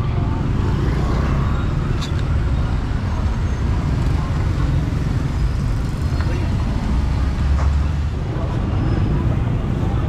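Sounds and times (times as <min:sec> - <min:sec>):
low traffic rumble: 0:00.0 - 0:10.0
motorbikes and cars passing: 0:00.0 - 0:10.0.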